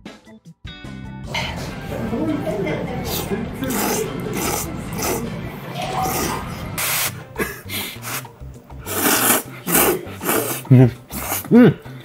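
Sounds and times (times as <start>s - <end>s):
background music: 0.0s - 12.0s
slurping noodles: 3.1s - 11.7s.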